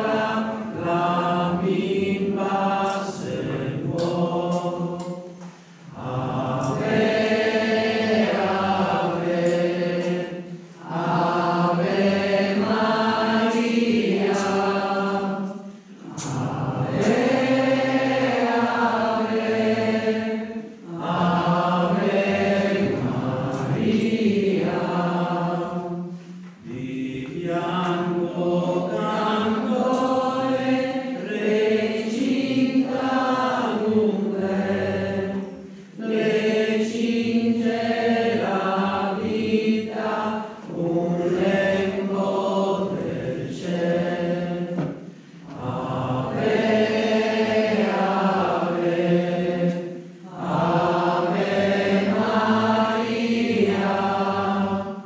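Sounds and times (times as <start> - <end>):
group of voices singing a hymn: 0.0 - 55.0.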